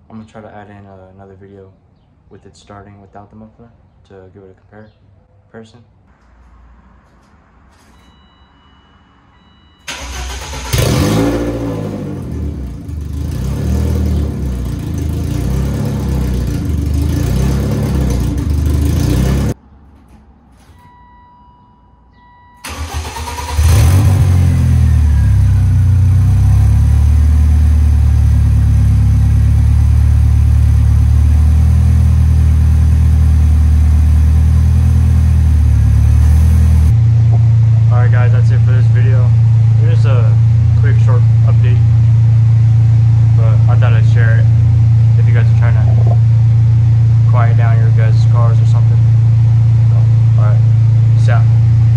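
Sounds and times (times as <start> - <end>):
car engine idling: 9.8 - 20.2, 22.6 - 51.9
car engine starting and revving: 9.9 - 19.6, 22.6 - 51.9.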